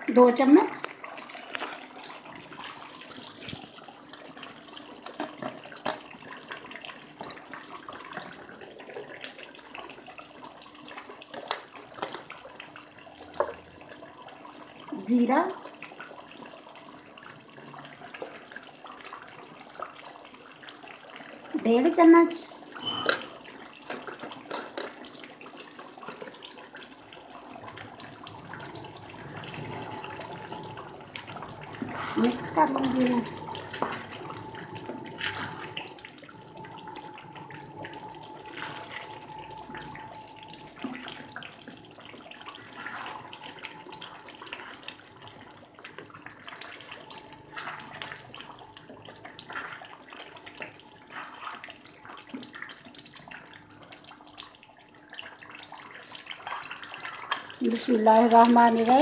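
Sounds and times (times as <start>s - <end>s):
gravy bubbling and popping in oil: 0.1s - 59.0s.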